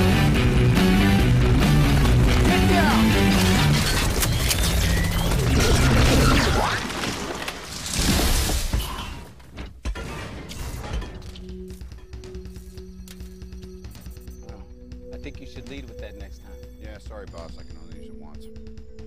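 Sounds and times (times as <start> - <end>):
action film music: 0.0 - 19.0
crashing and debris noise: 1.2 - 12.1.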